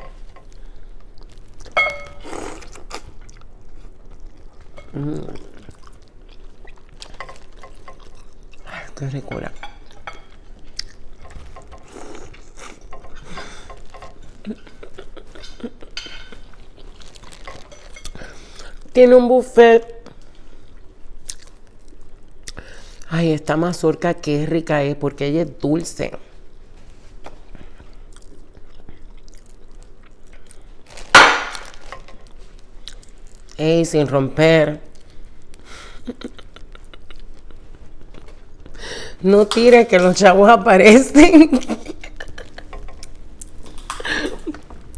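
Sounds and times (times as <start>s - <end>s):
chewing corn on the cob: 20.6s - 22.6s, 28.1s - 30.6s.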